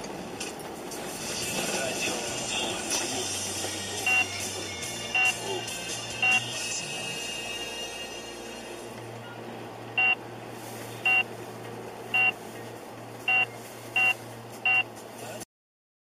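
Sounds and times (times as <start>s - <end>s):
car engine and road hum: 0.0s - 15.5s
short electronic beeps: 4.1s - 4.3s, 6.2s - 6.4s, 10.0s - 10.2s, 11.0s - 11.2s, 12.2s - 12.4s, 13.3s - 14.9s.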